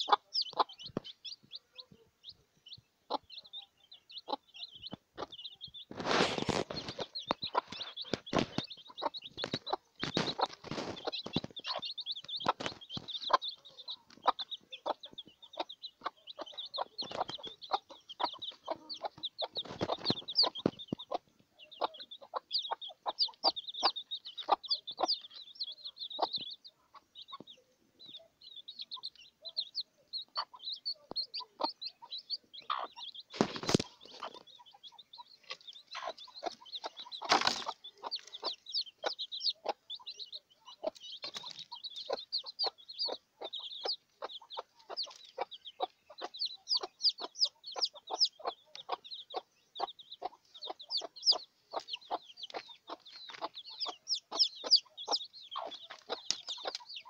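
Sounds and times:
chicks peeping: 0.0 - 57.0
hen clucking: 0.0 - 57.0.

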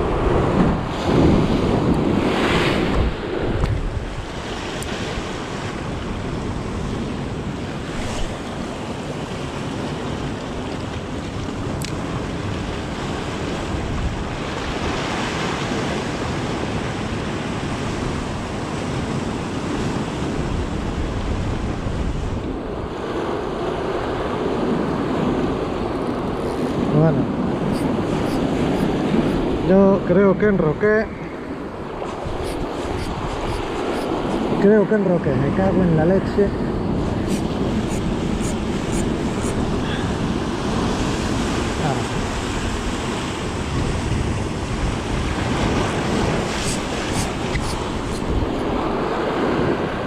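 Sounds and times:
wind buffeting microphone: 0.0 - 50.0
surf breaking over rocks: 31.8 - 50.0.

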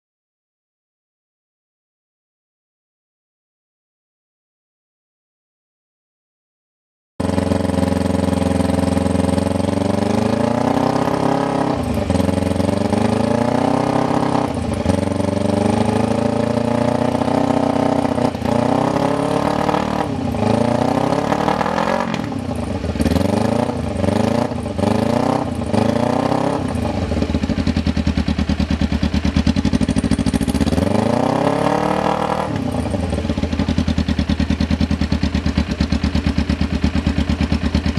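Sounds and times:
motorcycle engine idling: 7.2 - 11.0, 11.8 - 17.4, 22.2 - 31.8, 32.5 - 37.9
motorcycle engine revving: 7.2 - 37.9.

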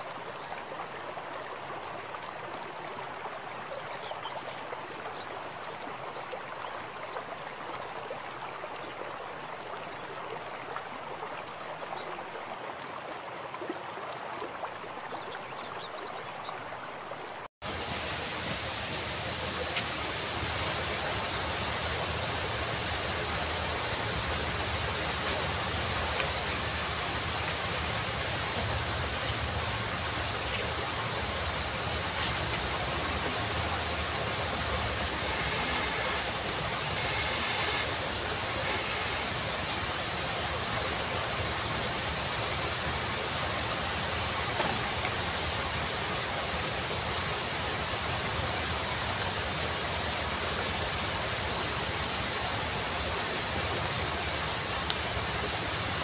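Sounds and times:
high-pitched insect chorus: 17.6 - 56.0
rain hissing: 17.6 - 56.0.

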